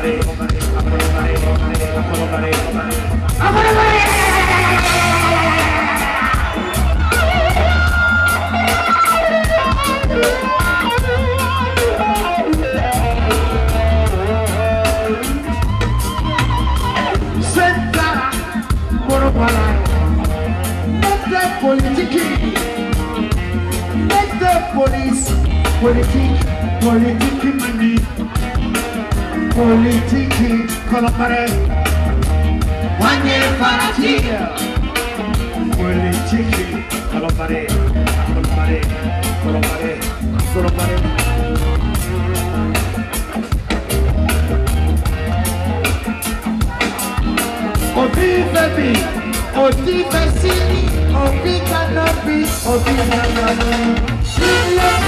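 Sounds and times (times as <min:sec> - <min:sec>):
drum beat: 0:00.0 - 0:55.0
electric guitar: 0:00.0 - 0:55.0
pulsing bass line: 0:00.0 - 0:55.0
people singing: 0:03.4 - 0:06.6, 0:33.0 - 0:34.6.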